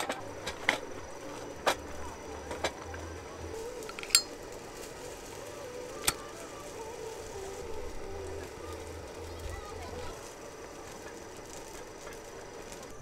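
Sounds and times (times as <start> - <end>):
lighter lid clinking open: 3.8 - 4.4, 5.9 - 6.2.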